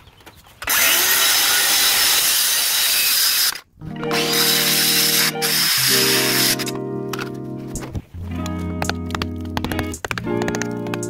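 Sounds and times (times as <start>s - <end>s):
circular saw cutting stucco: 0.6s - 6.7s
music with held notes: 3.8s - 11.0s.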